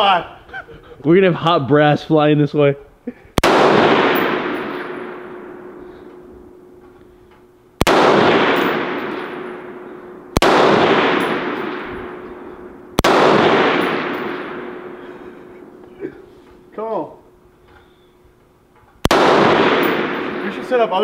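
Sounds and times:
rifle shots echoing: 0:03.4 - 0:16.7, 0:19.0 - 0:21.0.

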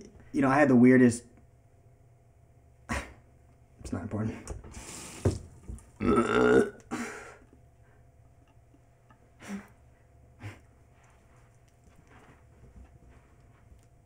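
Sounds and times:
person burping loudly: 0:06.0 - 0:07.2.

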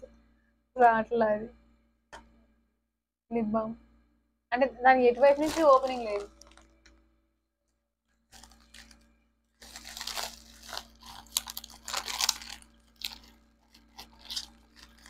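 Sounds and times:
packaging crinkling and tearing: 0:05.2 - 0:06.9, 0:08.3 - 0:15.0.

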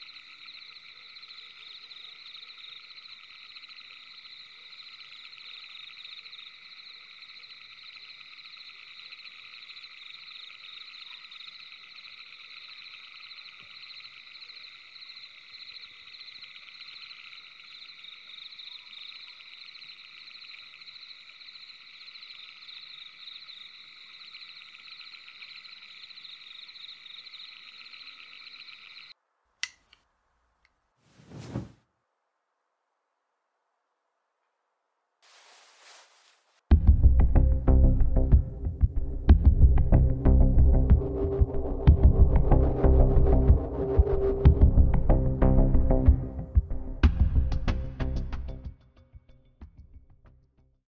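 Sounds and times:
frogs trilling: 0:00.0 - 0:29.2
light switch clicking: 0:29.6 - 0:30.0.

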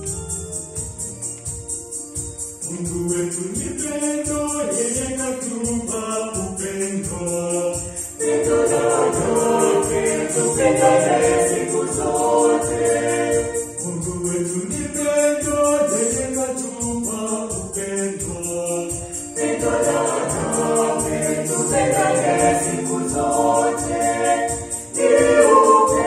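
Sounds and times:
keyboard accompaniment: 0:00.0 - 0:26.0
steady percussion beat: 0:00.0 - 0:26.0
choir singing a hymn: 0:06.2 - 0:26.0.

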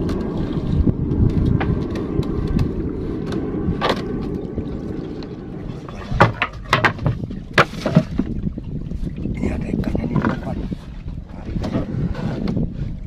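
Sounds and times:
water lapping around boat: 0:00.0 - 0:13.0
wind on microphone: 0:00.0 - 0:13.0.

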